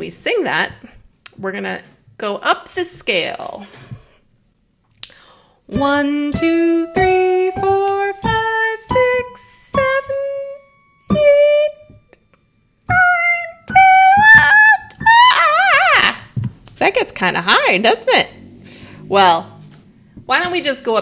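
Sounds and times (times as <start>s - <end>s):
woman singing up a scale: 5.7s - 12.2s, 12.9s - 16.4s.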